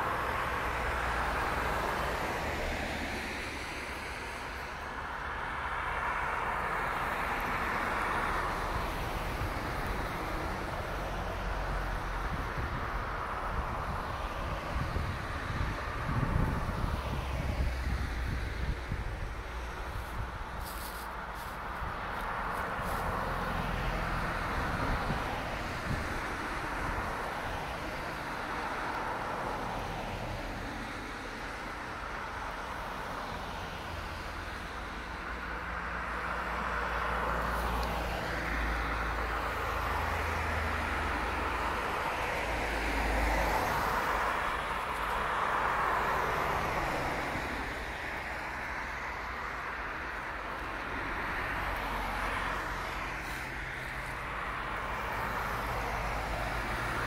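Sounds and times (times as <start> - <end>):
cars passing on wet road: 0.0 - 57.0.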